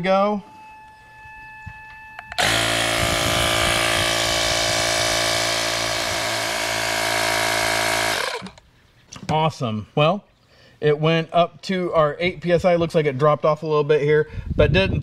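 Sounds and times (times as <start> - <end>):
small piston compressor running: 2.4 - 8.6.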